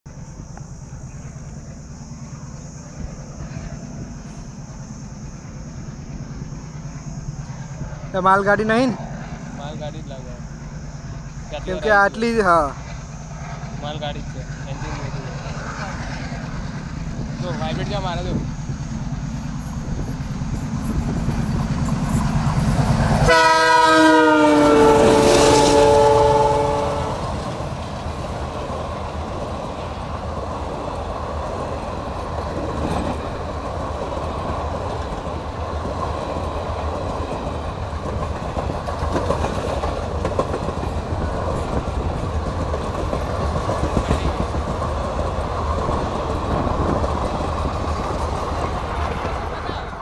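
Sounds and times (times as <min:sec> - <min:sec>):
train wheels clattering over rails: 0:00.1 - 0:50.0
diesel locomotive horn: 0:20.9 - 0:27.8.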